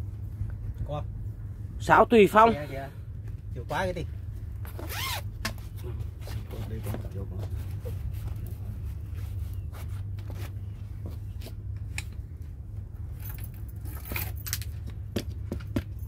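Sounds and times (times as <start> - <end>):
light clicks and clinks: 13.0 - 15.0.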